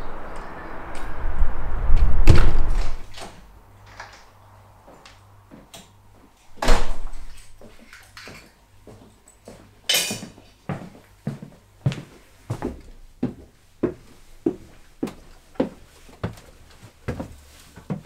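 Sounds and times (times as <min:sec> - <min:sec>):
outdoor background noise: 0:00.0 - 0:18.0
door banging shut: 0:06.6 - 0:07.3.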